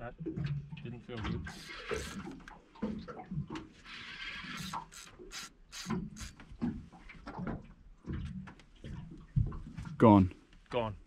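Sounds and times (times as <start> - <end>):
fishing line hissing off reel: 1.5 - 2.4, 4.0 - 6.4
fishing reel clicking: 1.5 - 2.4, 4.2 - 6.4.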